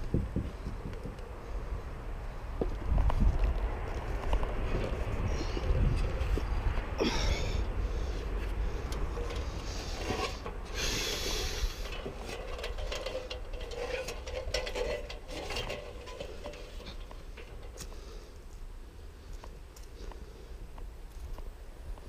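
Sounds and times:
wind rumble: 0.0s - 19.7s
brushing hiss: 7.9s - 15.0s
hands and shoes on metal ladder: 8.4s - 18.6s.

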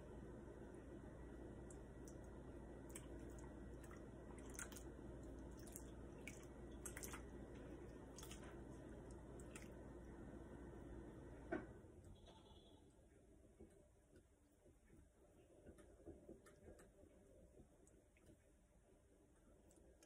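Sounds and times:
low steady hum: 0.0s - 20.0s
dripping and wet squishes: 1.6s - 10.2s.

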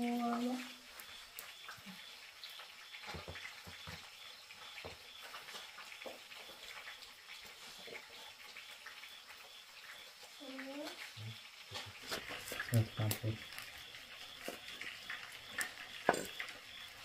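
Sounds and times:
low steady hiss: 0.0s - 17.0s
dishes and utensils clinking: 15.6s - 16.5s.

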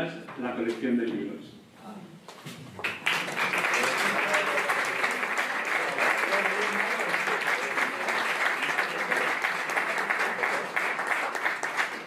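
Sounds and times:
audience applauding: 2.8s - 12.0s.

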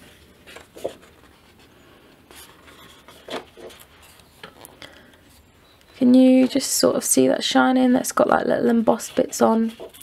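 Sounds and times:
paper rubbing and scraping: 0.0s - 4.3s, 8.2s - 10.0s.

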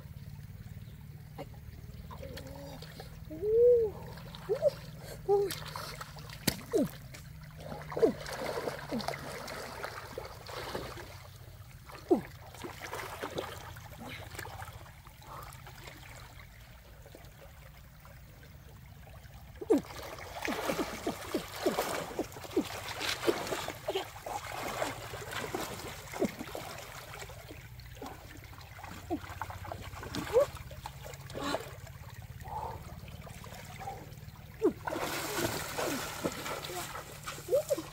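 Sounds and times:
stream water flowing: 0.0s - 37.9s
hands splashing in water: 34.6s - 37.9s.

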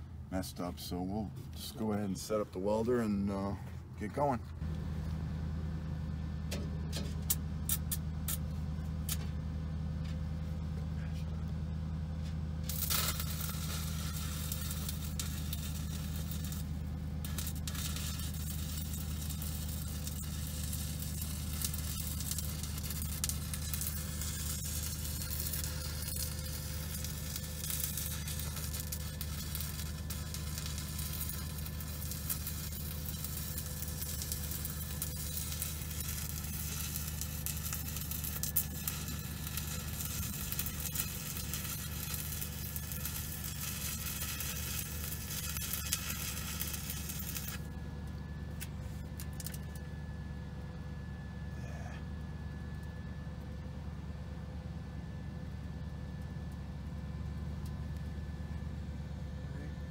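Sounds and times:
steady low hum: 0.0s - 59.9s
welding arc crackling and sizzling: 6.9s - 9.4s, 12.3s - 49.9s.

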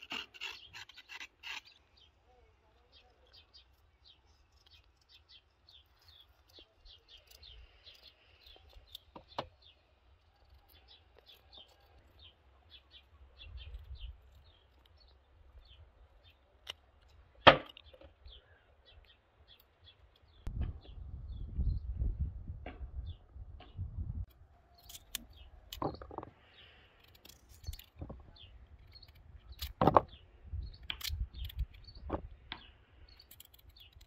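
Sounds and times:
small bird chirping: 0.0s - 22.0s, 23.0s - 34.0s.

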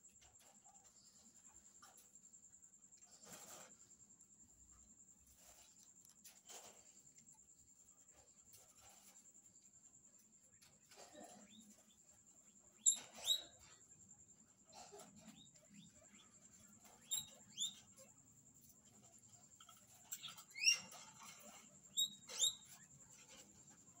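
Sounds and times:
guinea pigs squeaking: 10.5s - 14.1s, 14.7s - 24.0s.

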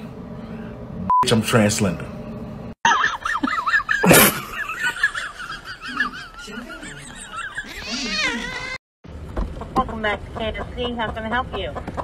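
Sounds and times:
high-pitched giggling laughter: 2.9s - 8.8s.

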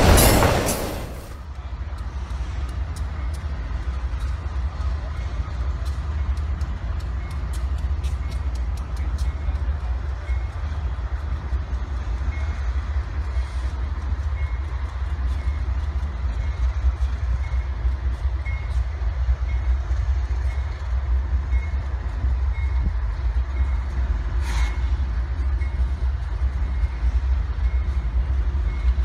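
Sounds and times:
sharp metal clank: 0.0s - 1.4s
freight train rumble: 0.0s - 29.0s.

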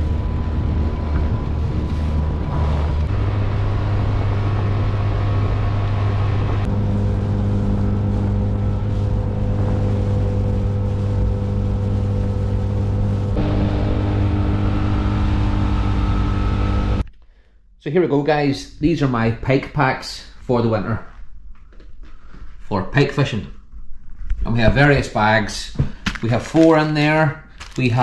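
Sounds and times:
outboard motor running: 0.0s - 17.0s.

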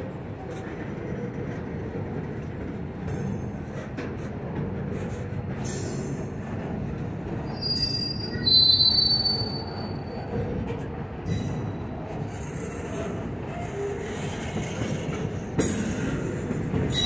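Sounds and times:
train wheels rumbling on rail: 0.0s - 17.0s
metallic wheel squeal: 7.5s - 10.2s.

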